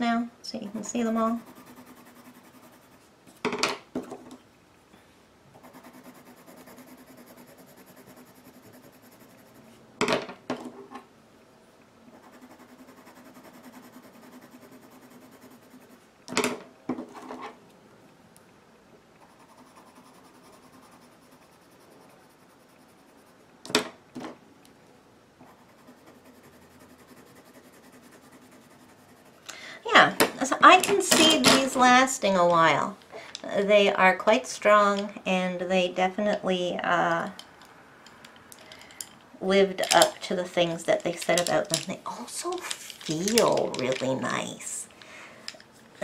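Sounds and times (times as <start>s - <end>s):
pencils scratching on paper: 0.6s - 3.1s, 5.6s - 9.8s, 12.2s - 16.0s, 19.2s - 23.4s, 25.4s - 29.4s
pencil clattering down: 42.5s - 44.2s.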